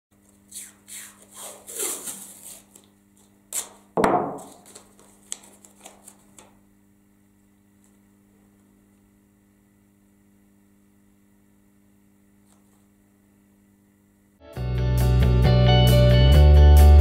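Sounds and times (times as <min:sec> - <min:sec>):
tape rubbing on cardboard: 0:00.2 - 0:03.8, 0:04.4 - 0:06.2
masking tape tearing: 0:00.5 - 0:06.4
tape roll knocking on table: 0:04.0 - 0:04.8.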